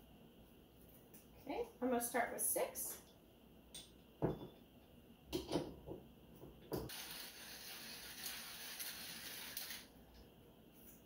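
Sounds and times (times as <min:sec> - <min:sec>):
coffee grinder grinding beans: 0:06.9 - 0:10.0.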